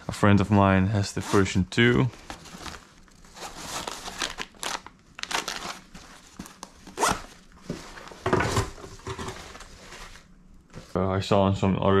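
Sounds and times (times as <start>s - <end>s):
fabric rustling and scraping: 0.0s - 4.5s, 5.4s - 11.0s
packaging crinkling: 2.1s - 8.8s.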